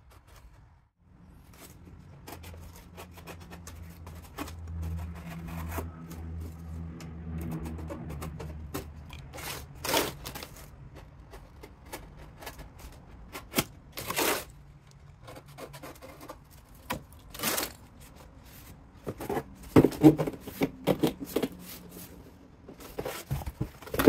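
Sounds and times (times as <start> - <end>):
cardboard box scraping on bench: 17.4 - 24.0.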